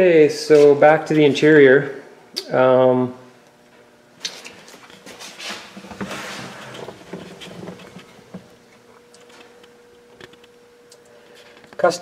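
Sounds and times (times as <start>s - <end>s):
faint buzzing hum: 0.0s - 12.0s
camera handling rustling and knocks: 5.8s - 8.6s.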